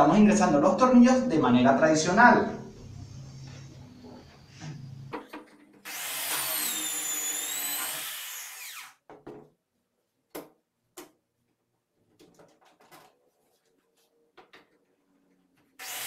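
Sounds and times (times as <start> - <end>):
electric drill whining: 5.9 - 9.0, 15.8 - 16.0.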